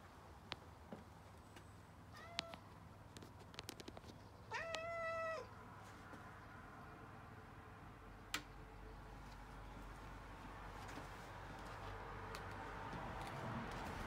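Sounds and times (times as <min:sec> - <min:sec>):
cat meowing: 0:02.1 - 0:02.6, 0:04.5 - 0:05.5.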